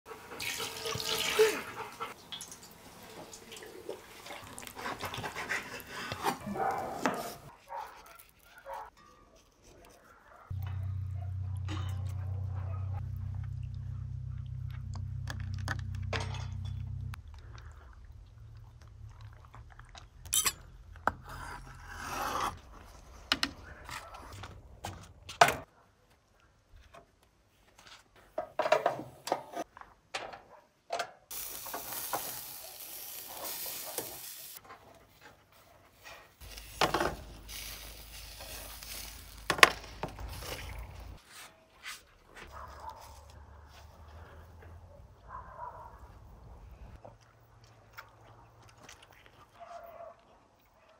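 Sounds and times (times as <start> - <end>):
low hum: 10.6 - 18.6
steady hissing: 31.3 - 34.6, 36.4 - 41.2.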